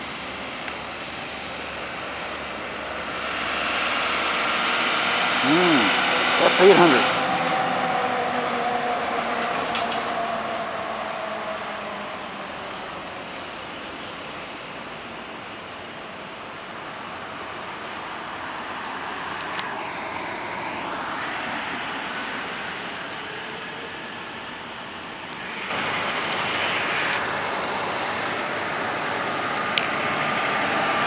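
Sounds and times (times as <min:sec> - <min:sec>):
truck driving past: 0:01.9 - 0:12.2
airport background noise: 0:05.4 - 0:07.2.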